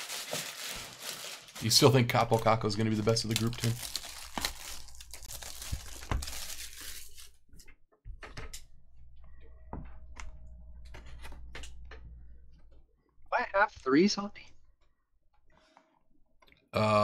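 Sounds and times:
cellophane crinkling and tearing: 0:00.0 - 0:07.4.

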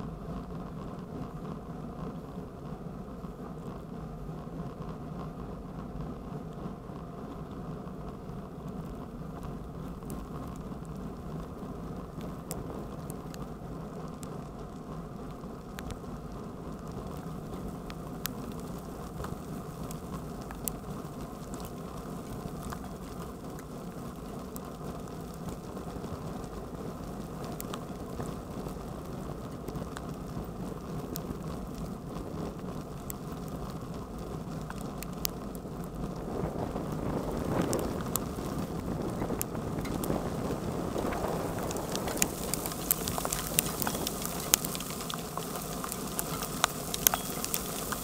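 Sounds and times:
bicycle tyres rumbling on wet road: 0:00.0 - 0:48.0
hail ticking on bike: 0:08.0 - 0:48.0
wind on microphone: 0:35.8 - 0:48.0.

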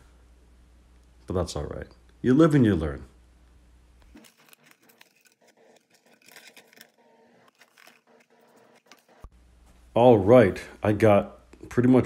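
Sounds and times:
fingernails scratching and peeling film: 0:04.1 - 0:09.3.

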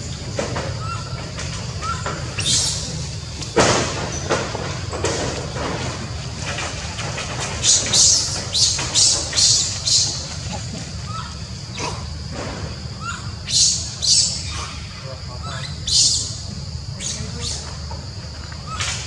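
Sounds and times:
baby monkey screaming: 0:00.8 - 0:03.0, 0:13.0 - 0:16.3.

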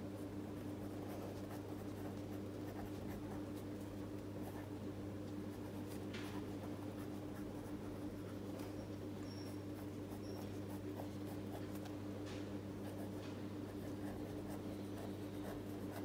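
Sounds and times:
pen scratching on paper: 0:12.8 - 0:16.0.

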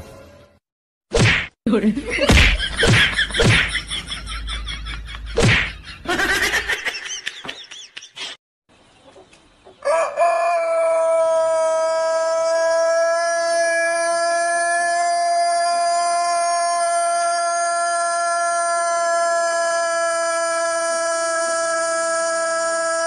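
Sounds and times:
sharp whacks: 0:01.1 - 0:01.6, 0:02.3 - 0:03.8, 0:05.4 - 0:05.8.

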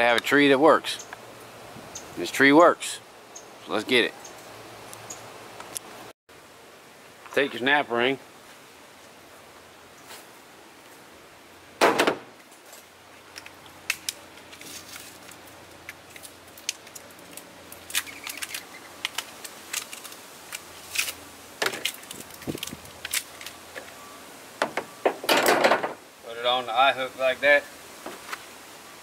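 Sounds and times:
thump: 0:11.8 - 0:12.3.

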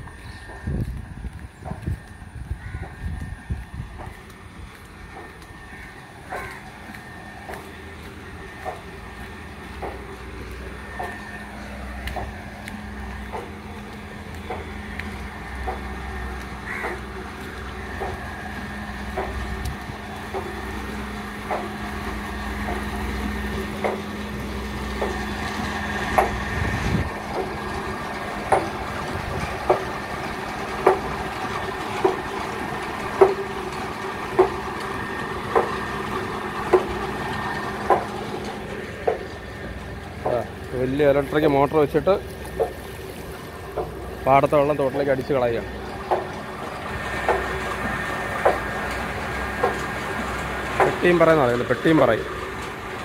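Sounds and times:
low hum and rumble: 0:00.0 - 0:53.0
footsteps on concrete: 0:00.1 - 0:05.6, 0:12.0 - 0:15.8.

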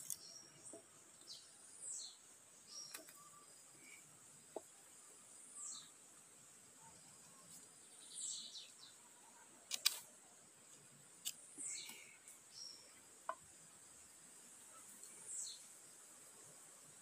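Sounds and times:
bamboo poles clicking: 0:00.0 - 0:00.3, 0:09.6 - 0:10.1
faint high hiss: 0:00.0 - 0:17.0.

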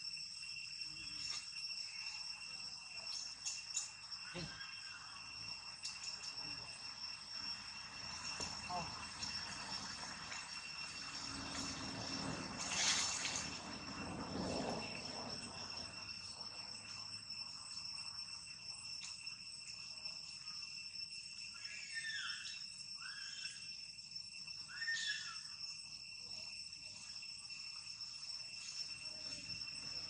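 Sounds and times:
rustle: 0:00.0 - 0:18.1
high insect drone: 0:00.0 - 0:30.0.

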